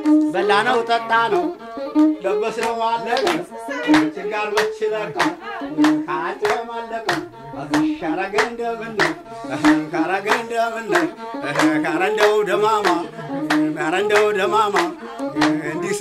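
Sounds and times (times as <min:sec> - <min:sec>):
man singing: 0:00.3 - 0:16.0.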